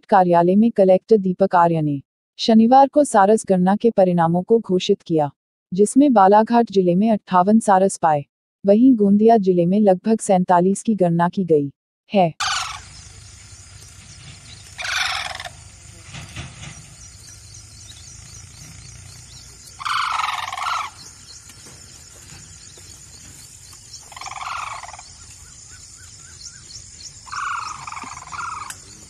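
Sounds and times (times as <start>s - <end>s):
cranes calling: 12.4s - 29.0s.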